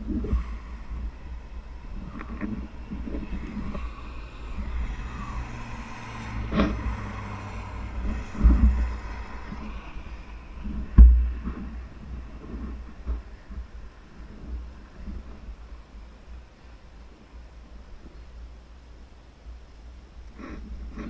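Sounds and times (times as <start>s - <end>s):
wind buffeting microphone: 0.0s - 16.1s.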